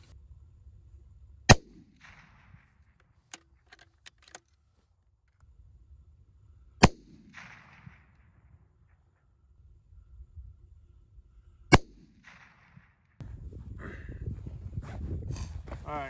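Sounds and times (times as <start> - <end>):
rifle shots: 6.8 - 8.3.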